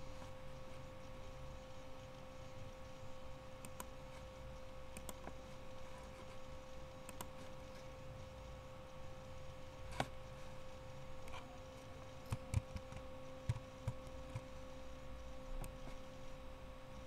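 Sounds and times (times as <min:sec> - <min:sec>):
steady low hum: 0:00.0 - 0:17.0
computer mouse clicking: 0:03.6 - 0:03.9, 0:04.9 - 0:05.4, 0:07.0 - 0:07.9, 0:09.9 - 0:10.2, 0:12.2 - 0:14.6, 0:15.6 - 0:16.0.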